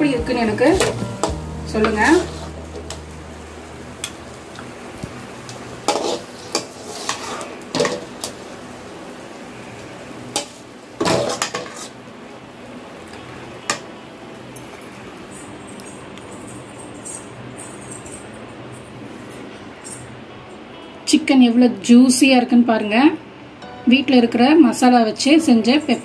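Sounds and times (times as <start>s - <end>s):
metal spatula scraping a pan: 5.8s - 8.1s, 11.0s - 12.0s.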